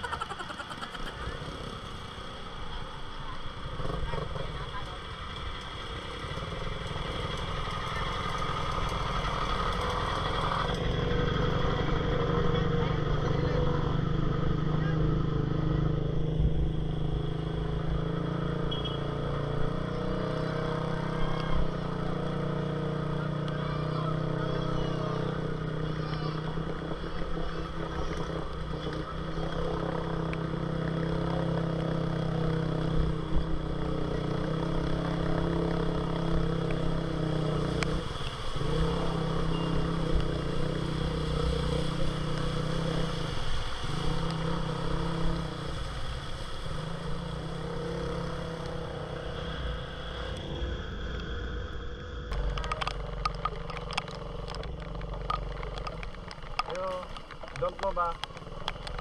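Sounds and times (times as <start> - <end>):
motorcycle engine revving: 0.0 - 59.0
sharp clicks: 52.3 - 59.0.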